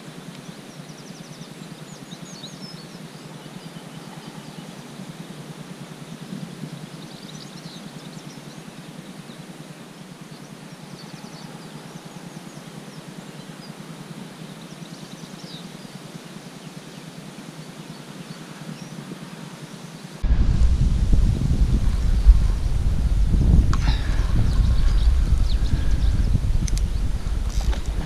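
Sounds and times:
wind rumble on microphone: 20.2 - 28.0.

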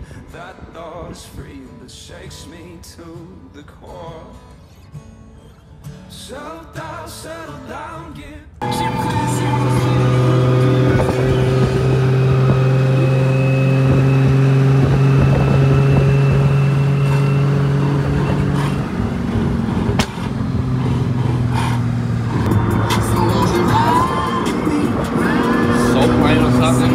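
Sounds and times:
vehicle engine running: 8.6 - 26.9.

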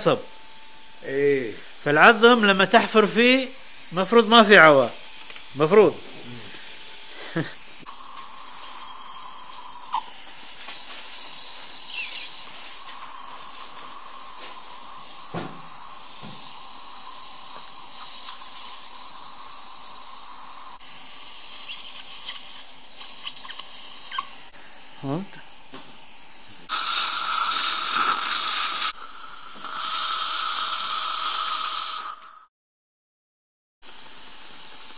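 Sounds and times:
dental suction hissing: 0.0 - 32.5, 33.8 - 34.9.

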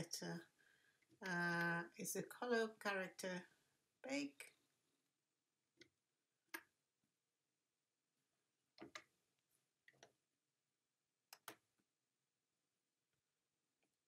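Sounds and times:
mouse and keyboard clicks: 11.3 - 11.6.

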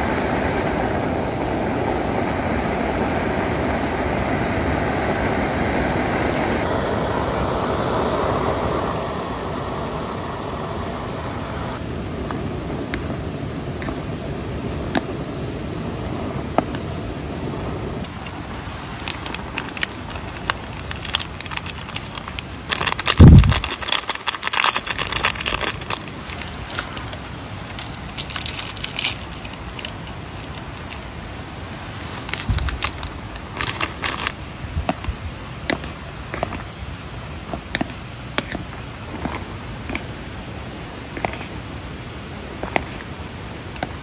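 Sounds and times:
gas stove burner running: 0.0 - 34.4.

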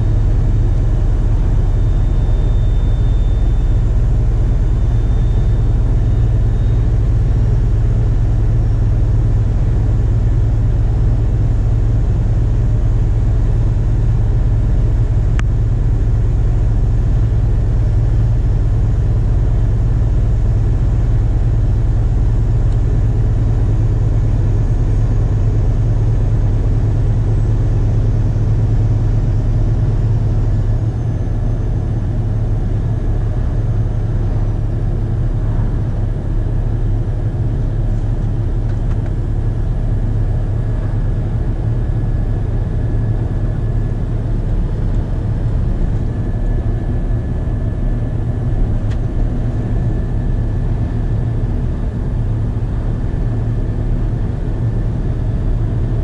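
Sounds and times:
truck diesel engine drone: 0.0 - 56.0
road noise: 18.4 - 54.7.

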